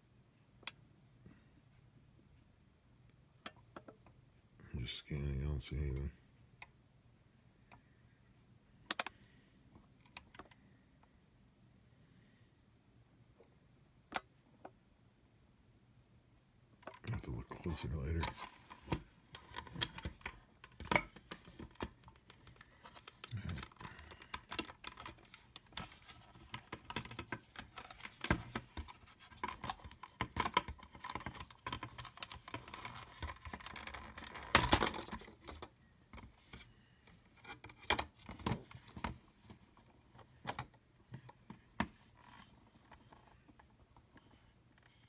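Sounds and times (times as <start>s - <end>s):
plastic parts clicking and scraping: 16.8s - 45.0s
plastic parts clattering: 18.1s - 36.3s.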